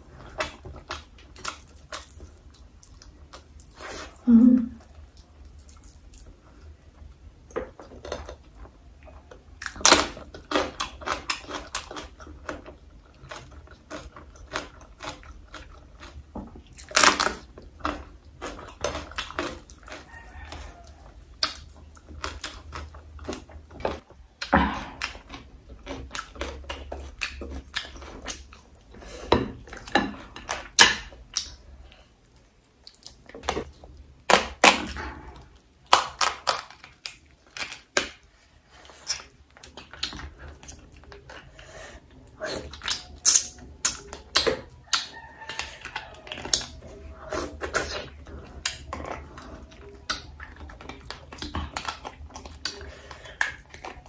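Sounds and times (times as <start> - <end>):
chewing and mouth smacking: 4.8 - 29.0, 29.6 - 34.1, 34.7 - 54.0
crab shell cracking and snapping: 35.8 - 38.3.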